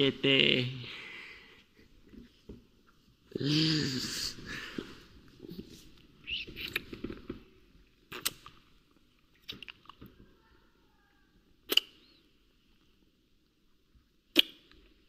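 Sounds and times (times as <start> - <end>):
kissing lip smacks: 6.3 - 7.0, 8.1 - 8.6, 11.7 - 12.2, 14.3 - 14.8.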